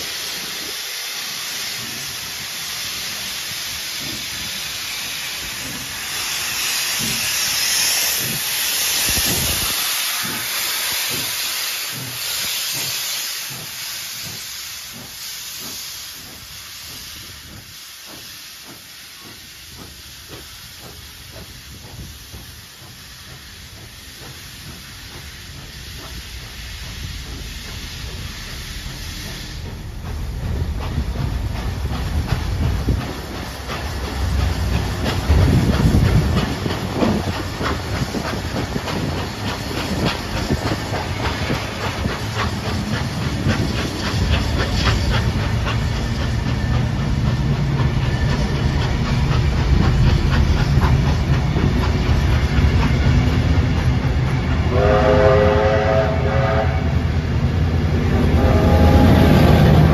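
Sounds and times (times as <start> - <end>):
diesel locomotive running: 0.0 - 59.9
steam hissing: 0.0 - 59.9
train wheels clicking over rail joints: 0.0 - 59.9
train whistle: 54.7 - 57.2, 58.1 - 59.9.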